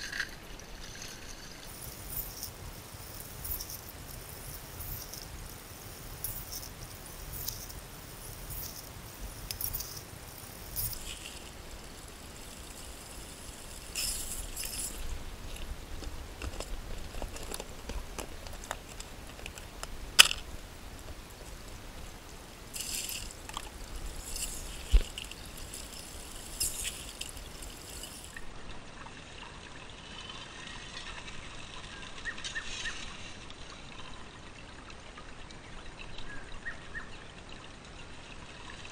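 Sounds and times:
gravel rattling: 0.0 - 28.5
water running through sluice box: 0.0 - 38.9.

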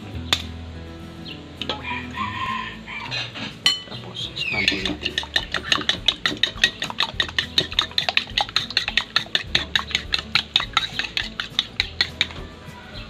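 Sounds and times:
spoon beating eggs in bowl: 4.5 - 13.0
spoon clinks against bowl: 4.6 - 12.4.

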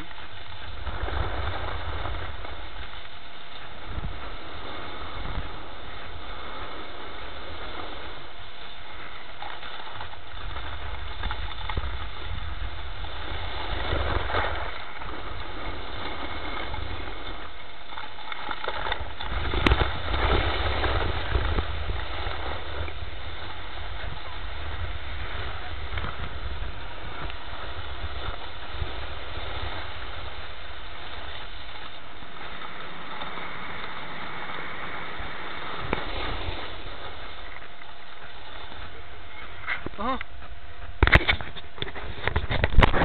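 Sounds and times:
wind rumbling on microphone: 0.0 - 43.0
edges scraping packed snow: 32.4 - 37.6.

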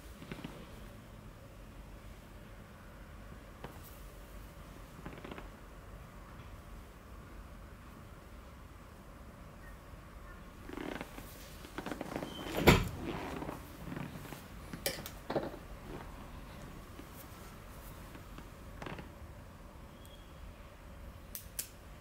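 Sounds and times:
knocks and rustling: 10.7 - 17.3.

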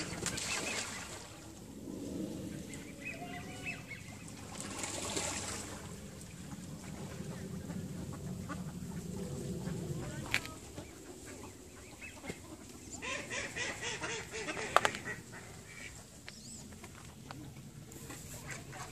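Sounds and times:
low even rumble: 0.0 - 12.0
mallard ducks quacking: 6.4 - 16.1, 18.0 - 18.9.

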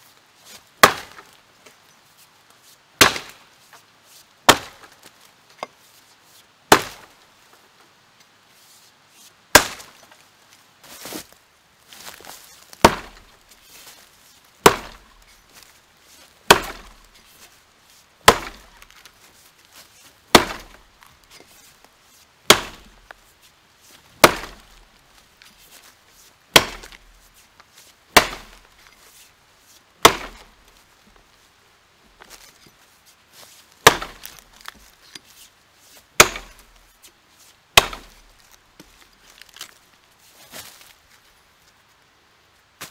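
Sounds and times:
axe chopping into log: 0.8 - 1.2, 3.0 - 3.4, 4.5 - 4.9, 6.7 - 7.1, 9.5 - 10.0, 12.8 - 13.3, 14.6 - 15.1, 16.5 - 17.1, 18.3 - 18.9, 20.3 - 20.8, 22.5 - 22.9, 24.2 - 24.7, 26.5 - 27.0, 28.2 - 28.7, 30.0 - 30.5, 33.8 - 34.7, 36.2 - 36.6, 37.8 - 38.2.

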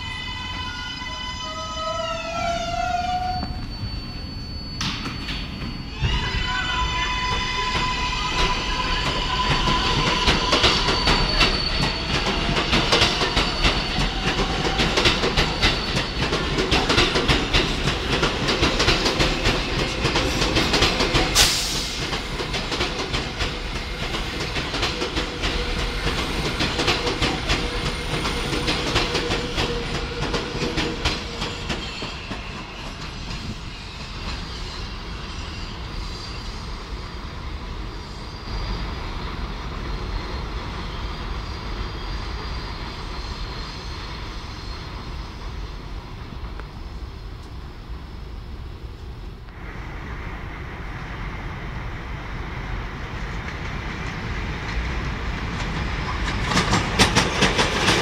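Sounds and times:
train high steady whine: 0.0 - 58.0
train wheels clacking over rail joints: 7.7 - 34.5, 53.4 - 58.0.

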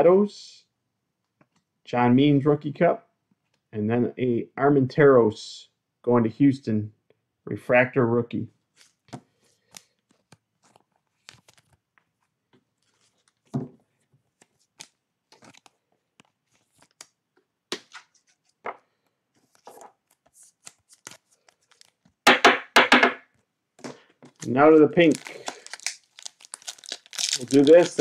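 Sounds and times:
cards shuffling: 8.7 - 13.6, 14.3 - 22.2, 23.8 - 28.0
cellophane wrapper tearing: 19.6 - 22.2, 24.3 - 28.0.

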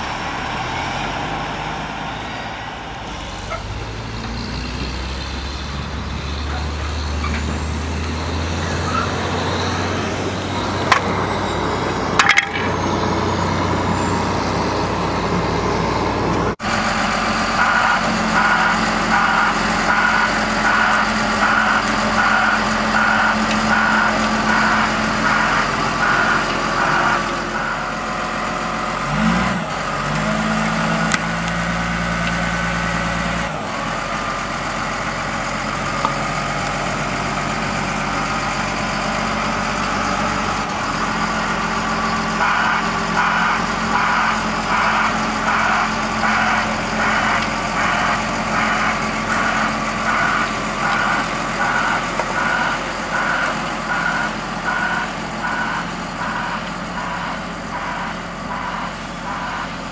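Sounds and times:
diesel engine revving: 0.0 - 59.9
reversing alarm beeps: 48.8 - 59.8.

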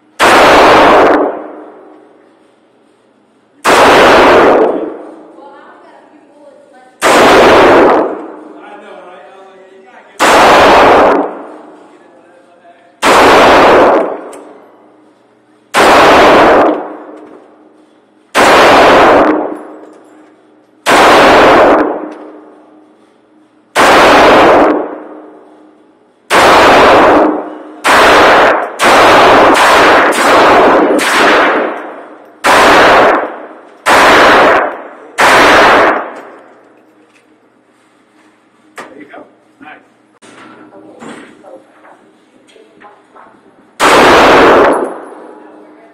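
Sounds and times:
pistol shots echoing indoors: 0.0 - 3.0, 3.6 - 5.4, 7.0 - 8.9, 10.2 - 11.9, 13.0 - 37.3, 43.7 - 45.7.

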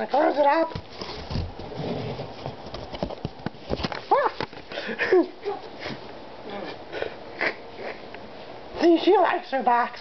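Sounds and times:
cardboard box flaps scraping: 0.9 - 3.0.

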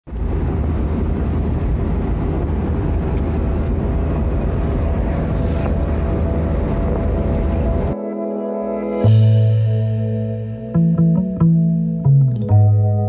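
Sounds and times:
road and engine rumble in cabin: 0.0 - 8.0.

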